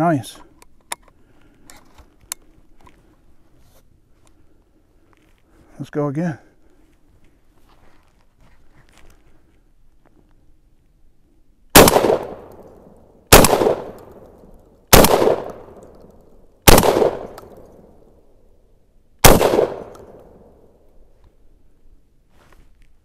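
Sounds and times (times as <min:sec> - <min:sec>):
shotgun shots with echo: 0:11.8 - 0:12.6, 0:13.3 - 0:14.2, 0:14.9 - 0:15.8, 0:16.6 - 0:17.4, 0:19.2 - 0:20.4.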